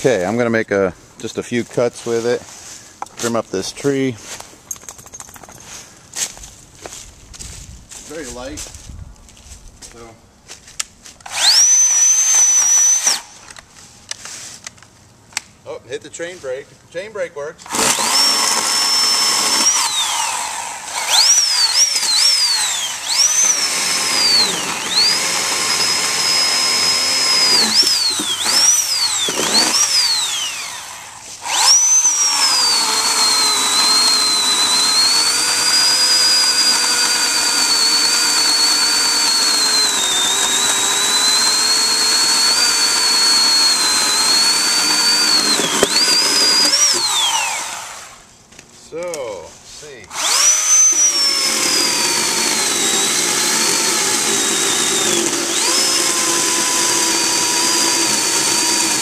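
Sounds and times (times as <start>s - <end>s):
chainsaw cutting log: 11.2s - 13.4s, 17.6s - 48.2s, 50.1s - 59.0s.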